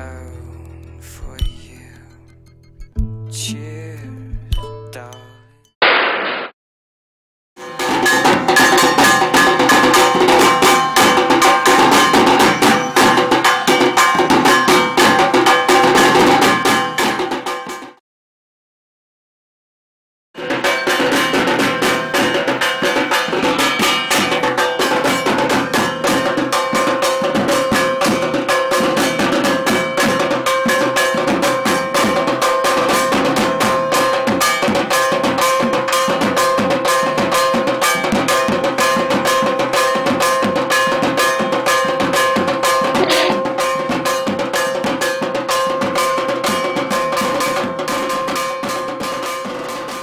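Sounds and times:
metallic bell-like beat: 0.8 - 3.5, 4.2 - 5.6, 7.6 - 17.8, 20.4 - 49.9
fast dense drum music: 4.2 - 4.8, 20.5 - 49.9
steady held tone: 43.0 - 43.5.

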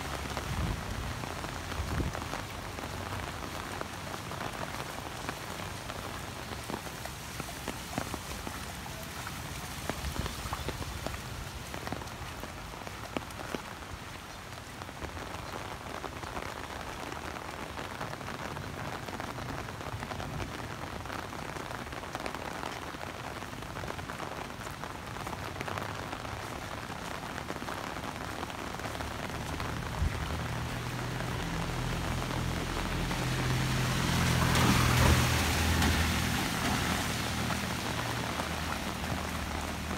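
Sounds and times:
heavy rain on street: 0.0 - 39.9
raindrops ticking on umbrella: 0.0 - 39.9
vehicle engine approaching: 29.2 - 39.9.

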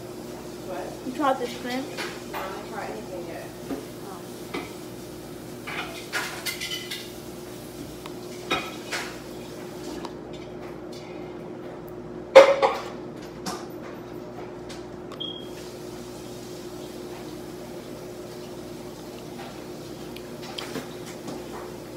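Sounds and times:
dishes and cutlery clinking: 5.6 - 7.1, 8.3 - 9.2.

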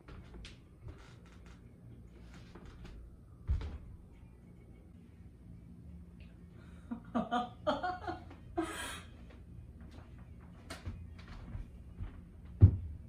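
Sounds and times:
woman laughing: 6.9 - 9.2.

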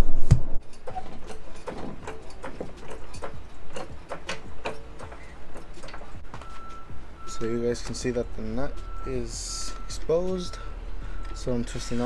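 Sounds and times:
hydraulic jack clicking and creaking: 0.6 - 8.2.

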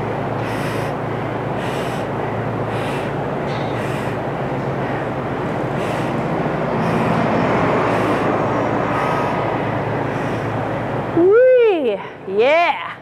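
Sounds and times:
steady rushing hum: 0.0 - 13.0
woman breathing hard: 0.4 - 10.7.

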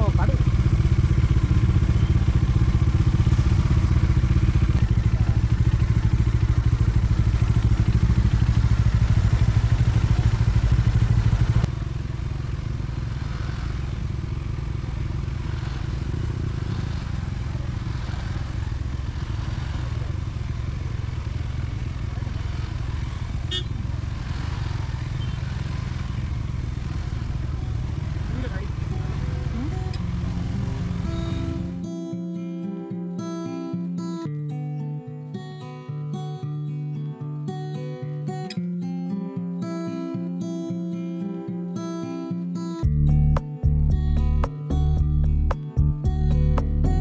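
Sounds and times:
motorcycle engines idling: 0.0 - 32.0.

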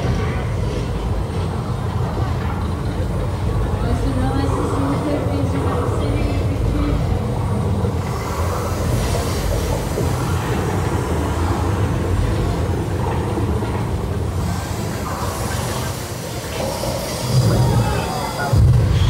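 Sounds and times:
tram ride low rumbling: 0.0 - 19.0.

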